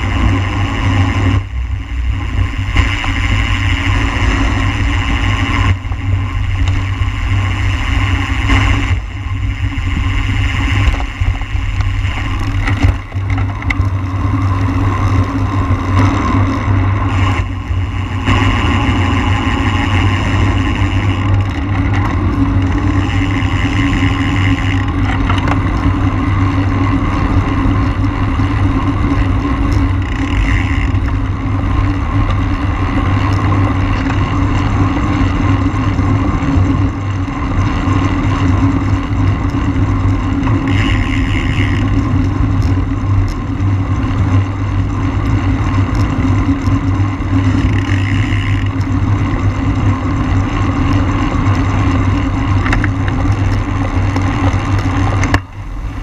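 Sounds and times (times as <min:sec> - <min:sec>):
wind rush: 0:00.0 - 0:24.5
higher buzz: 0:00.0 - 0:37.4, 0:38.0 - 0:52.6
bicycle tyre noise: 0:00.0 - 0:56.0
wind buffeting on microphone: 0:00.0 - 0:56.0.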